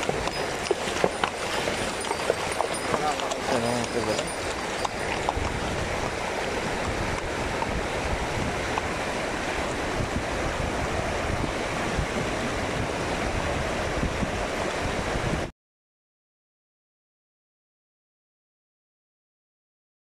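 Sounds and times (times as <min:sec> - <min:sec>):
river running over stones: 0:00.0 - 0:15.4.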